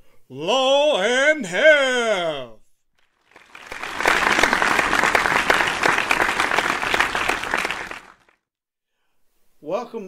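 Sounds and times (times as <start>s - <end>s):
audience applause: 3.1s - 8.4s.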